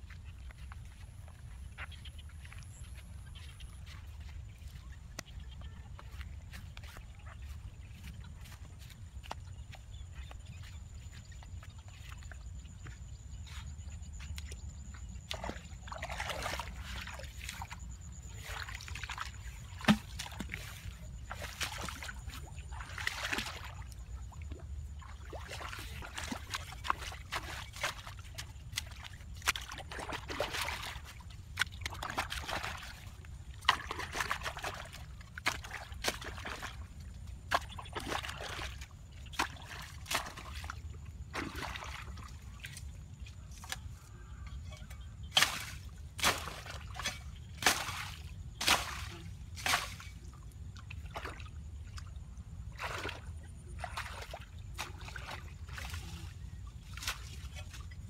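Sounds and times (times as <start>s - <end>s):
shallow water sloshing and trickling: 0.0s - 58.0s
sharp water splashes: 18.4s - 23.9s, 45.4s - 50.1s.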